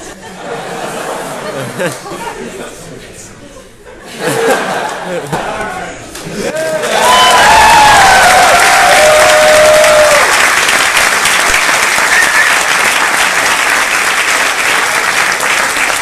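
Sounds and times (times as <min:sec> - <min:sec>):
audience clapping: 0:04.7 - 0:05.4, 0:06.1 - 0:16.0
audience cheering: 0:06.4 - 0:16.0
whoops: 0:06.7 - 0:10.4.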